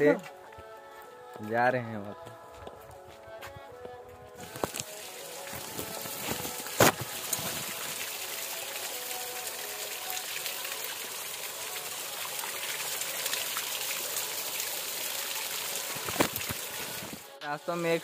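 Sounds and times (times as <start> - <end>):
small waterfall splashing over rocks: 4.4 - 18.0.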